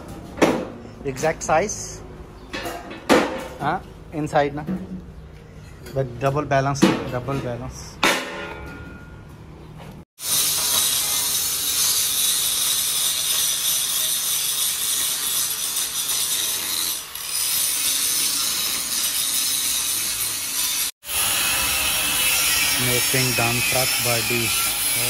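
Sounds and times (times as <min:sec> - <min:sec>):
angle grinder grinding steel: 0:10.2 - 0:25.0.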